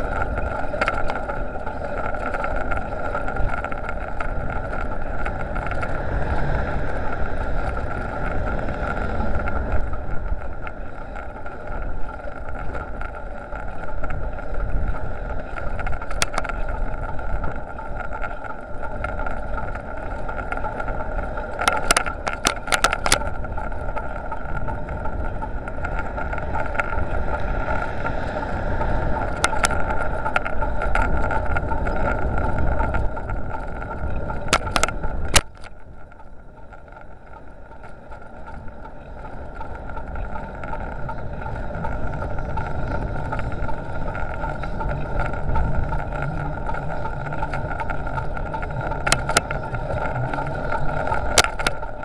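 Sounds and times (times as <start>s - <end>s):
road rumble: 0.0s - 52.0s
sharp clicks and rattles: 0.0s - 52.0s
steady high whine: 0.0s - 52.0s
wind on microphone: 0.0s - 52.0s.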